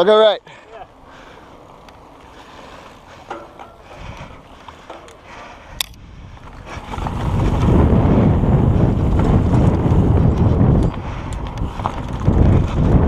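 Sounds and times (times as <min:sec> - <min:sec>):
bike rattling: 0:00.0 - 0:13.0
bike tyres rolling on dirt: 0:00.0 - 0:13.0
wind rushing on microphone: 0:03.9 - 0:04.6, 0:05.4 - 0:13.0.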